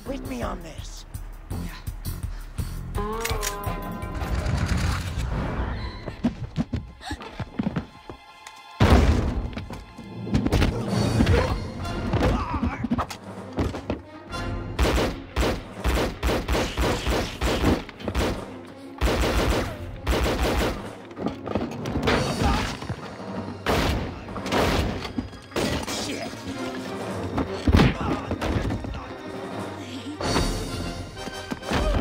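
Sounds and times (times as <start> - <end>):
film music score: 0.0 - 32.0
gunfire: 14.8 - 21.0, 23.6 - 25.0.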